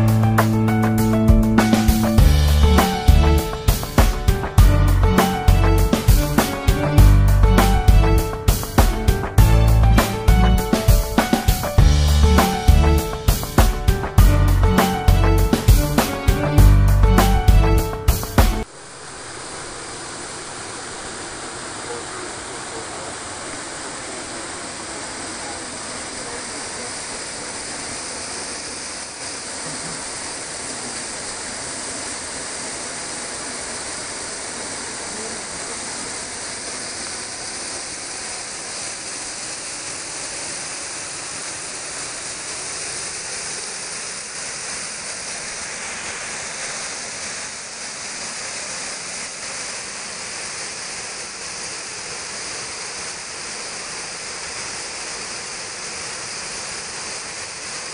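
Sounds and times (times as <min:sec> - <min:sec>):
small waterfall splashing: 0:01.6 - 0:06.8, 0:07.9 - 0:16.6, 0:17.8 - 0:57.9.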